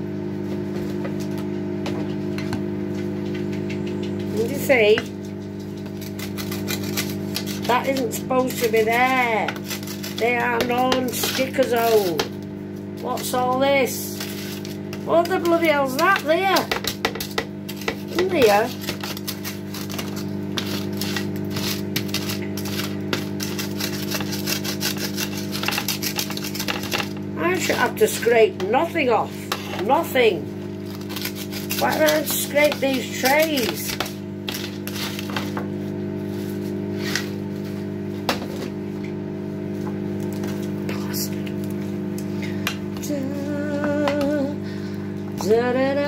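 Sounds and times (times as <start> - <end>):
low electrical hum: 0.0 - 46.0
wooden spoon scraping baking tray: 5.7 - 12.3, 13.0 - 37.4.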